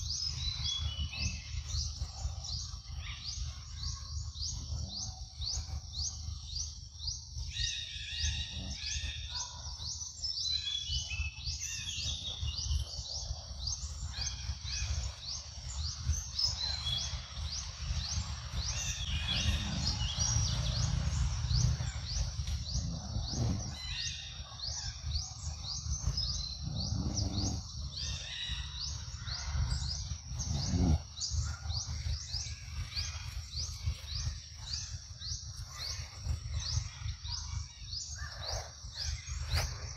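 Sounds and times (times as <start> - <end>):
bird chirps: 0.0 - 39.9
low rumble: 12.1 - 39.9.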